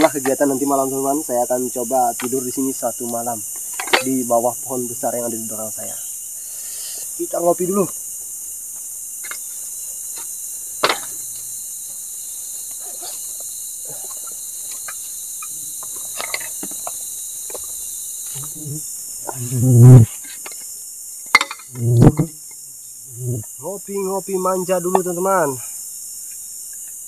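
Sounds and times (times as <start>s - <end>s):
insect chorus hissing: 0.0s - 27.0s
camping gear clicking and knocking: 3.5s - 4.1s.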